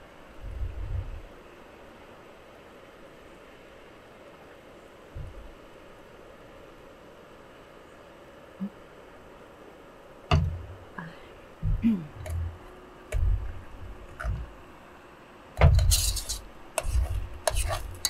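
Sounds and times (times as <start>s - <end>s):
utensil scraping frying pan: 15.6s - 18.0s.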